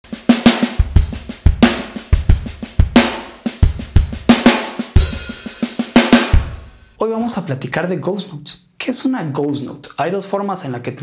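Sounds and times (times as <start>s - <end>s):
drum kit playing a groove: 0.0s - 7.4s.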